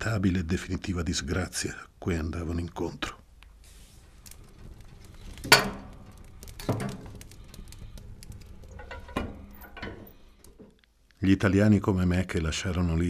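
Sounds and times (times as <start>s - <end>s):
wood fire crackling: 0.0s - 12.9s
fire pops: 3.2s - 11.2s.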